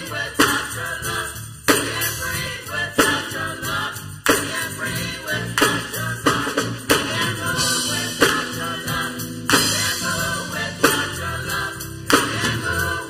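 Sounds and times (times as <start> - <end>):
upbeat gospel music with band: 0.0 - 13.0.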